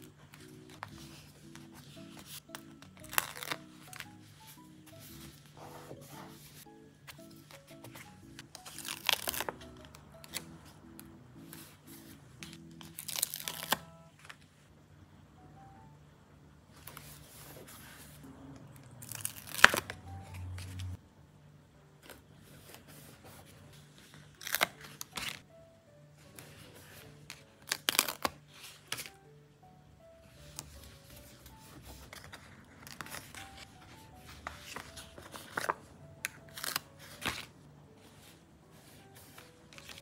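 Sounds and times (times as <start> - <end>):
paper stickers crinkling and peeling: 0.0 - 6.6, 7.2 - 10.5, 11.5 - 14.4, 18.8 - 21.0, 24.0 - 25.4, 26.4 - 29.2, 30.4 - 37.5, 39.1 - 40.0
soft background music: 0.0 - 40.0.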